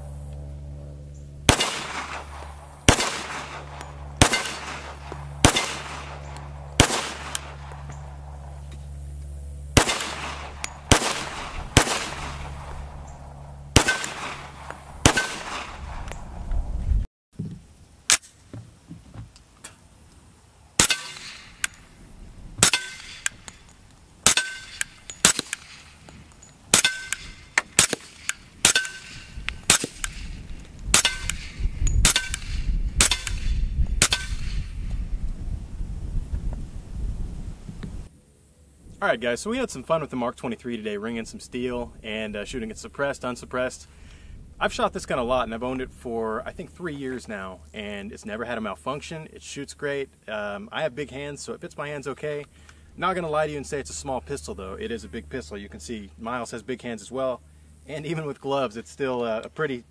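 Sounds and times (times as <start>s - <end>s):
metallic ring of steel targets: 1.2s - 8.9s, 9.8s - 16.4s, 20.8s - 22.0s, 22.6s - 34.8s
pistol shots: 1.5s - 8.6s, 9.8s - 16.2s, 20.8s - 21.7s, 22.6s - 23.4s, 24.2s - 26.0s, 26.7s - 34.7s
suppressed pistol shots: 1.5s - 8.6s, 9.8s - 16.3s, 20.8s - 21.8s, 22.6s - 23.5s, 24.2s - 26.0s, 26.7s - 34.8s.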